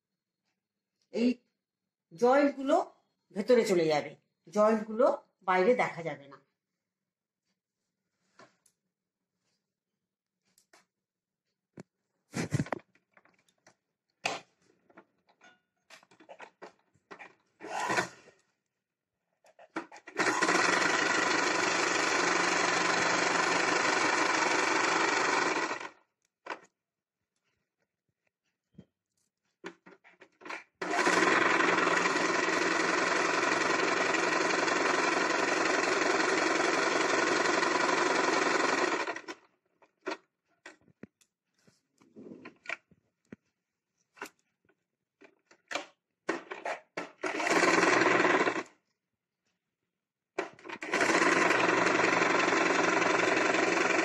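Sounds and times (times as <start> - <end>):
sewing machine stitching: 17.2 - 18.4, 19.6 - 26.0, 30.2 - 39.5, 46.3 - 48.8, 50.4 - 54.0.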